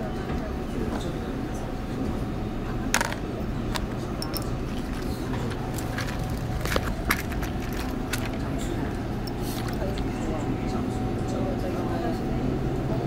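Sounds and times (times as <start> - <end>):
subway train low rumble: 0.0 - 13.0
plastic items clicking: 3.0 - 8.7, 9.3 - 10.1.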